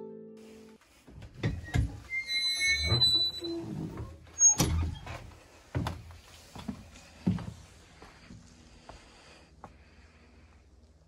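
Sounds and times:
bus door lever knocks and squeaks: 1.4 - 5.2.

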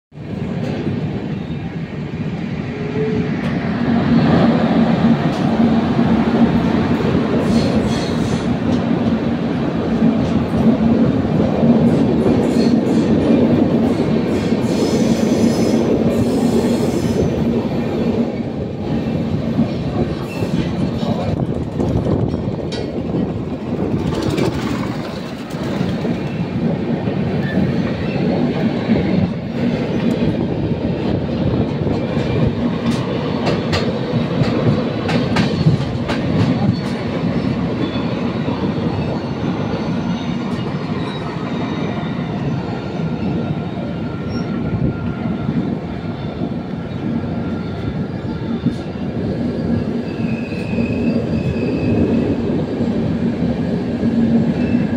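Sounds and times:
train wheels rumbling on rail: 0.1 - 54.9
high wheel squeal: 47.4 - 52.4.

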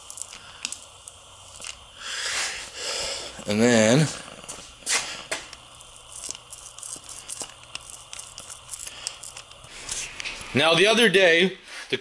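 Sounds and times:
plastic sheet crinkling: 6.0 - 10.6.

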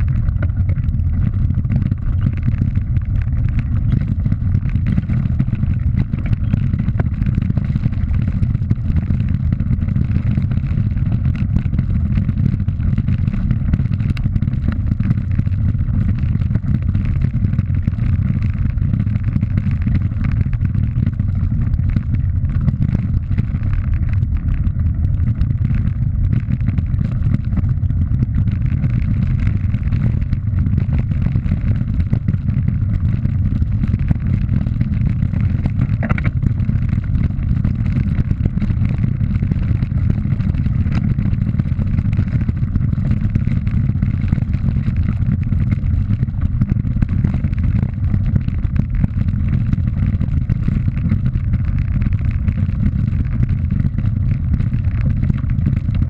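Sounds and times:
tyres rumbling over gravel: 0.0 - 8.2, 18.5 - 42.8.

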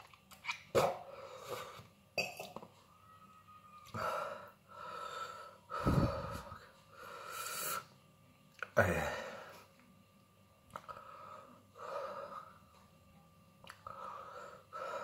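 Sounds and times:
man gasping and breathing hard: 4.0 - 6.6.

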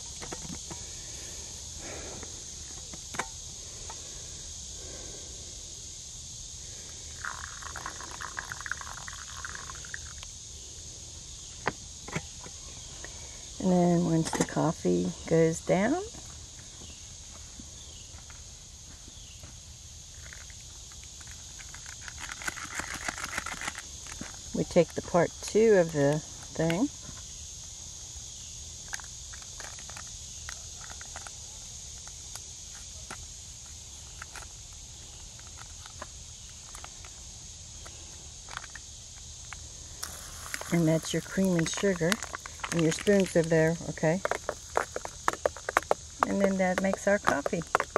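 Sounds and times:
high-pitched insect chorus: 0.0 - 47.9
water pouring onto coffee grounds: 7.0 - 10.2, 40.0 - 45.3.

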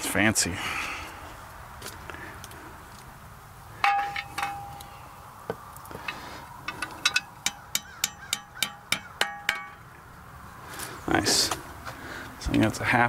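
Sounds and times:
hammer tapping metal bolts: 3.8 - 4.9, 6.7 - 9.9.

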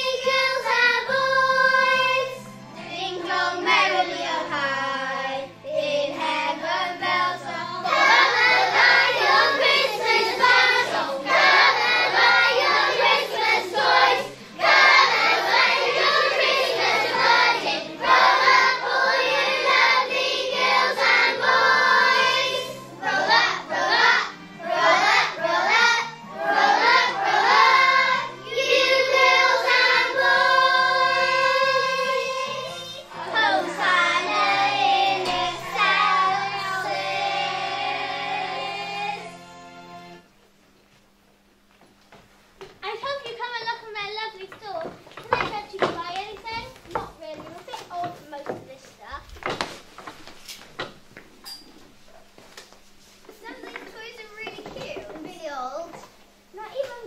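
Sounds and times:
children singing together: 0.0 - 39.5
instrumental accompaniment: 0.0 - 41.2.

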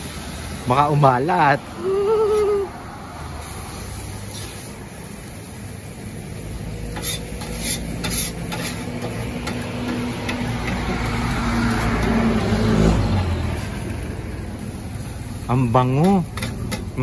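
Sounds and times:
food sizzling: 0.0 - 17.0
spatula scraping on metal griddle: 3.4 - 5.4, 6.4 - 12.5, 15.9 - 17.0.

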